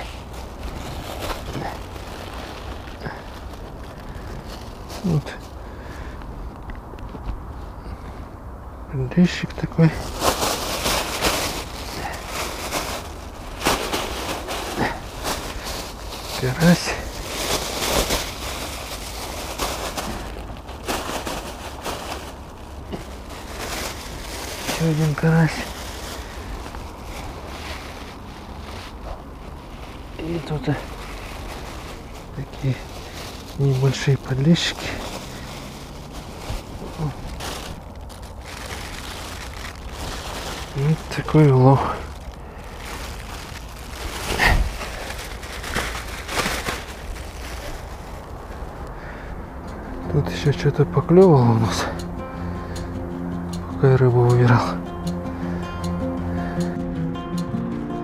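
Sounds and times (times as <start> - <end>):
plastic bag rustling: 0.0 - 8.2, 9.2 - 52.1
low rumble: 42.0 - 57.8.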